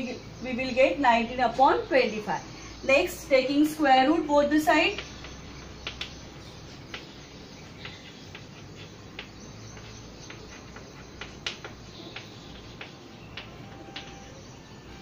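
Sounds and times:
low room hiss: 0.0s - 15.0s
chalk tapping and scratching on board: 4.9s - 14.3s.

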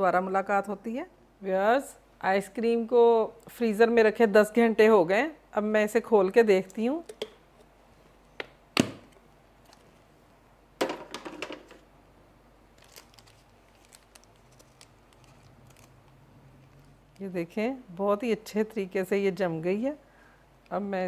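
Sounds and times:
paper rustling: 12.8s - 16.0s.

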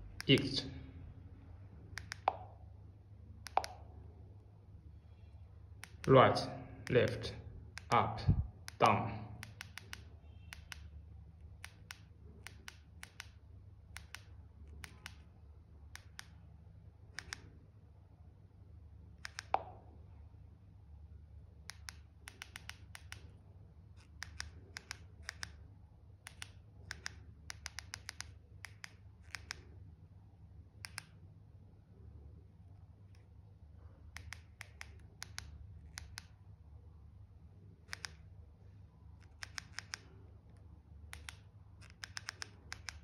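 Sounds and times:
steady low hum: 0.0s - 43.0s
keypad buttons clicking: 8.6s - 10.9s, 39.2s - 40.1s, 41.1s - 43.0s.

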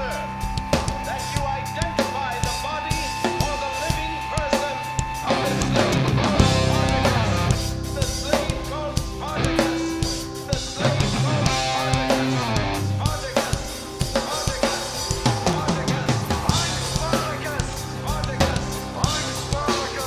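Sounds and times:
rock band playing: 0.0s - 20.0s.

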